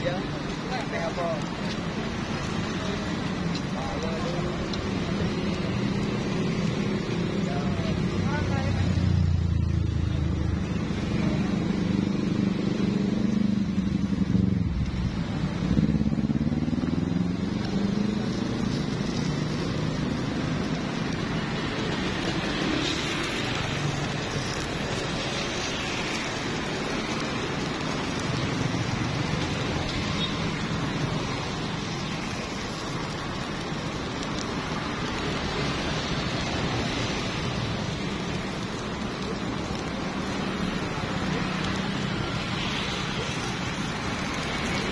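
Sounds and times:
rushing traffic noise: 0.0 - 44.9
vehicle engine passing by: 5.0 - 26.3.

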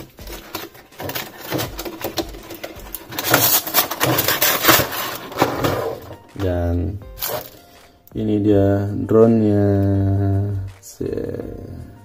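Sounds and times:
plastic packaging crackling: 0.0 - 6.5, 7.1 - 7.8.

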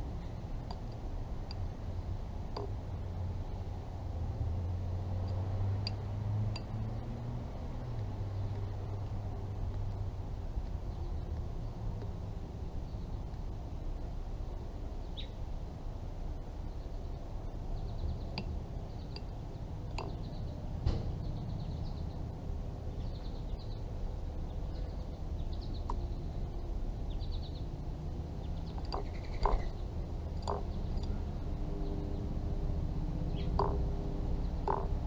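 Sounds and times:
low outdoor rumble: 0.0 - 35.0
beak pecking at a dish: 0.6 - 2.9, 17.8 - 20.5, 28.6 - 31.2, 33.4 - 33.9, 34.6 - 35.0
birds chirping: 15.0 - 15.5, 16.6 - 32.4, 33.2 - 35.0.

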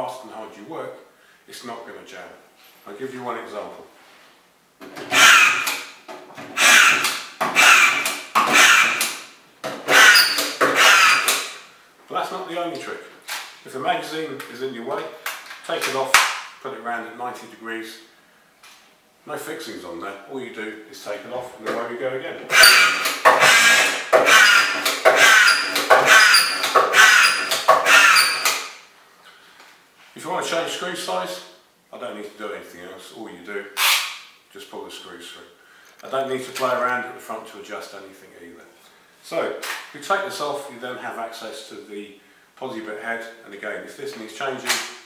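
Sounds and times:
screwdriver driving screws: 5.0 - 5.9, 6.6 - 9.2, 9.9 - 11.5, 22.5 - 28.7, 33.8 - 34.1.

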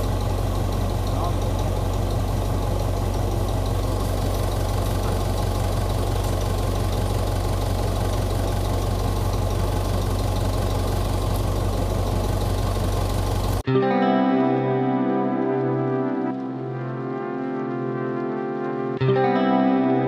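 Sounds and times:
tractor engine idling: 0.0 - 13.6.

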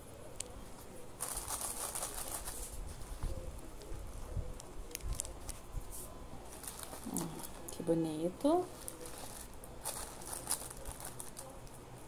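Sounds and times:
tissue paper rustling: 1.2 - 3.4, 5.1 - 7.8, 8.5 - 11.6.

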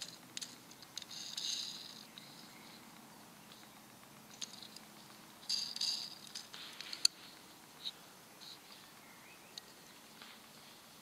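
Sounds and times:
toy car clicking: 0.0 - 2.4, 5.4 - 7.2
scratchy rubbing: 1.0 - 2.1.

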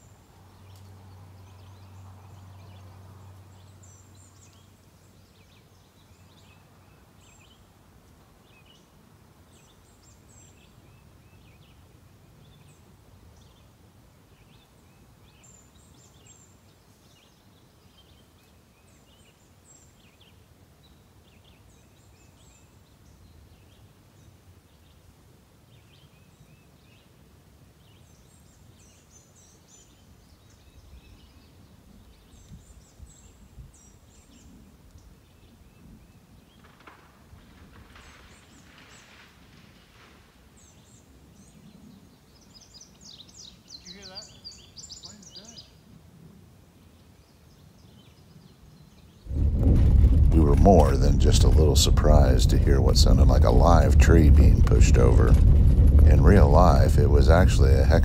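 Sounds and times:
small birds chirping: 40.6 - 45.9
low knocks: 49.3 - 58.0
low steady rumble: 49.3 - 58.0.

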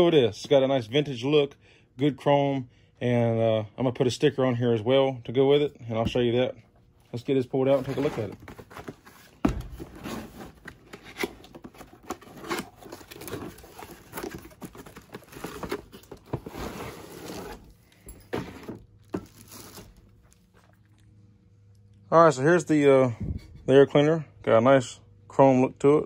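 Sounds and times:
plastic bag crinkling: 19.0 - 20.8.

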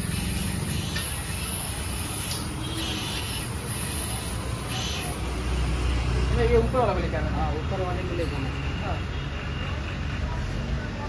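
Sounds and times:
gas hissing from valve: 0.0 - 6.7.

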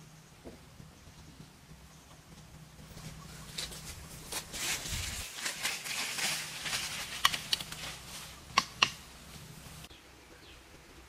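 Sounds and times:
leaves and brush rustling: 0.0 - 11.0
twigs snapping: 5.2 - 9.0.

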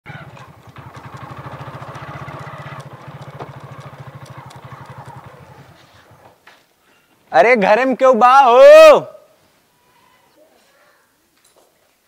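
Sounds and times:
motorcycle engine idling: 0.1 - 6.4.

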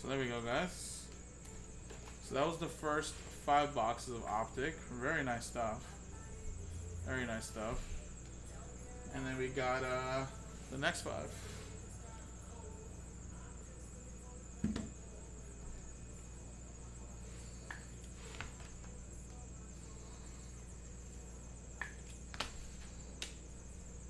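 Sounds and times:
faint hum and high whine: 0.0 - 24.0
box thumping on table: 14.6 - 14.9.

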